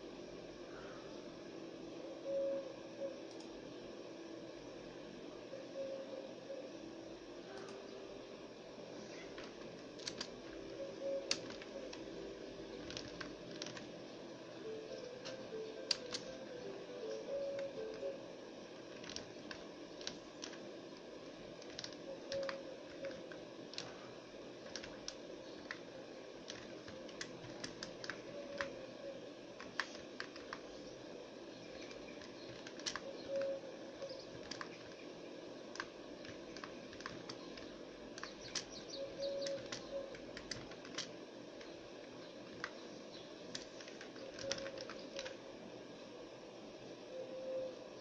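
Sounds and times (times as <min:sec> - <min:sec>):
keyboard keys clicking: 0:09.4 - 0:12.1, 0:12.7 - 0:13.9, 0:14.9 - 0:18.2, 0:18.8 - 0:20.6, 0:21.6 - 0:24.0, 0:24.6 - 0:28.8, 0:29.6 - 0:30.7, 0:31.7 - 0:35.0, 0:35.7 - 0:41.7, 0:42.4 - 0:42.8, 0:43.5 - 0:45.4.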